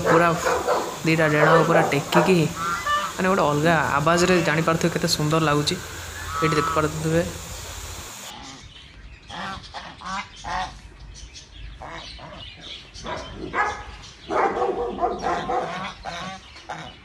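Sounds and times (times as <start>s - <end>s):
geese honking: 0.0s - 7.5s, 15.0s - 17.0s.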